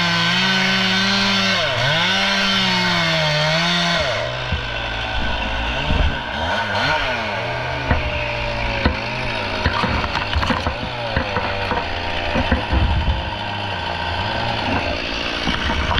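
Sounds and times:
chainsaw idling: 0:00.0 - 0:15.9
knocks and thuds of wood rounds: 0:02.9 - 0:13.6, 0:14.4 - 0:15.9.

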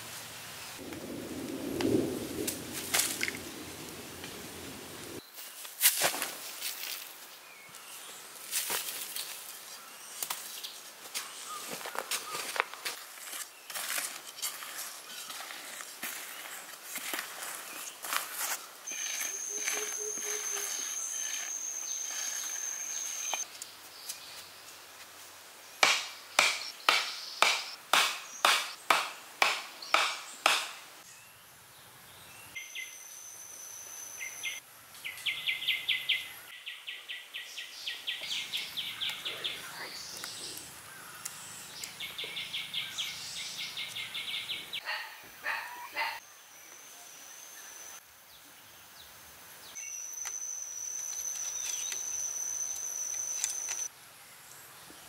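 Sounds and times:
high-pitched insect whine: 0:18.0 - 0:23.4, 0:32.6 - 0:34.6, 0:49.8 - 0:53.9
sharp strikes: 0:25.8 - 0:30.8.

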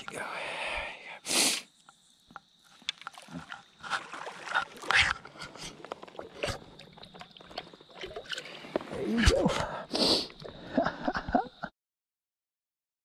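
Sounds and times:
river water splashing: 0:02.7 - 0:09.5.

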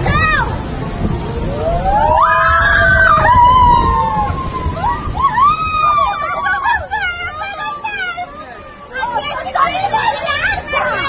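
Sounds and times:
rushing water: 0:00.0 - 0:11.0
riders screaming and whooping: 0:01.5 - 0:07.0.

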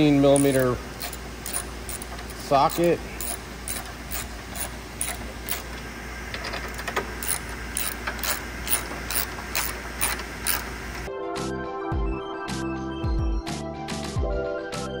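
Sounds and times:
ratchet pawl clicking: 0:00.0 - 0:05.7, 0:07.2 - 0:10.7.

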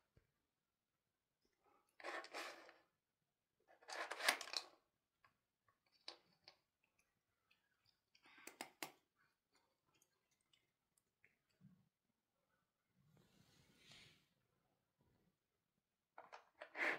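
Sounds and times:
plastic toy rattling and scraping: 0:03.8 - 0:04.7.

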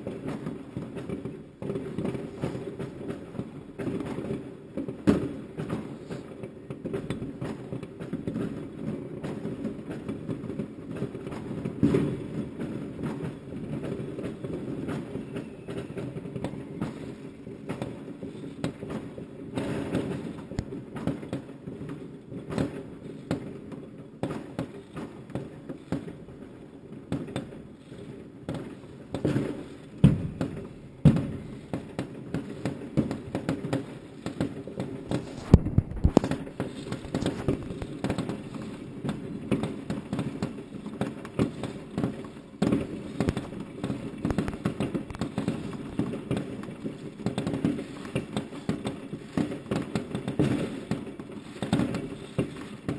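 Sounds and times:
distant fireworks crackle: 0:00.0 - 0:52.9
loud nearby firework bangs: 0:10.9 - 0:21.4, 0:28.5 - 0:52.9.

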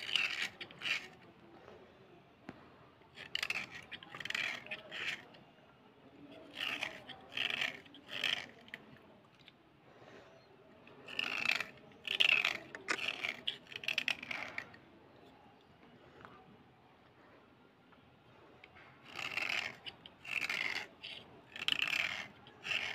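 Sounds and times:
blade scraping slate pencil: 0:00.0 - 0:01.7, 0:03.1 - 0:09.5, 0:10.8 - 0:14.8, 0:18.6 - 0:22.9.

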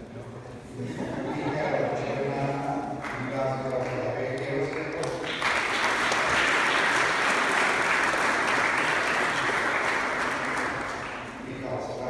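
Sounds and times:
audience applauding: 0:03.0 - 0:11.5.

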